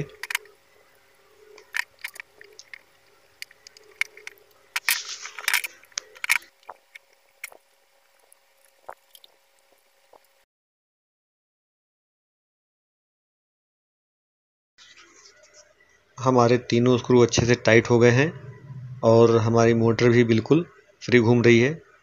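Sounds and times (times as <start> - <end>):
screwdriver and metal casing clicks: 0.0 - 0.5, 3.4 - 6.5
scraping rustle: 3.7 - 6.5.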